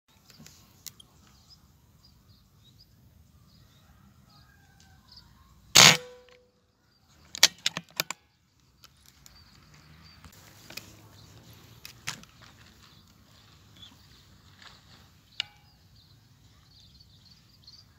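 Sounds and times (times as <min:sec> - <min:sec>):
silenced air rifle shot: 0:05.7 - 0:06.4.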